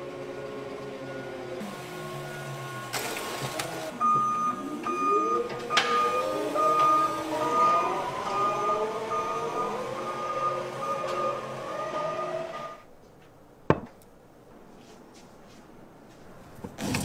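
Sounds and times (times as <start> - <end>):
forklift motor whining: 0.0 - 12.9
high beeping warning tone: 4.0 - 12.8.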